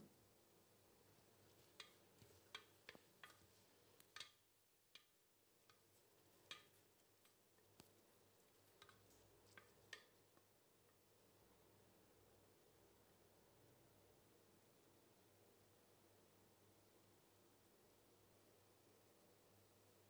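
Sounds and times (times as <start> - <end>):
wooden spoon tapping and scraping pot: 1.5 - 11.0.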